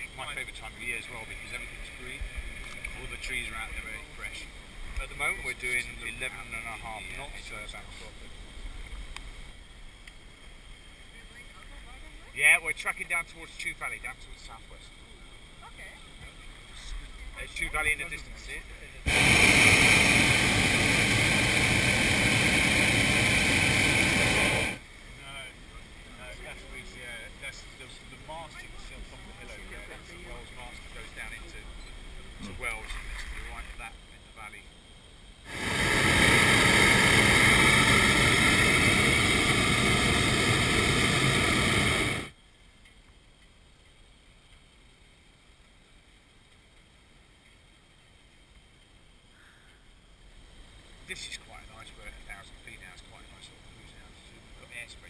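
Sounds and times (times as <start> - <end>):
propane burner blast: 18.4 - 24.8, 35.4 - 42.4.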